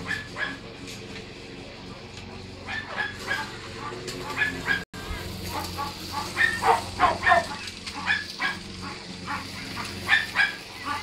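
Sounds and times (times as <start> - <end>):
dogs barking: 0.0 - 0.8, 2.6 - 11.0.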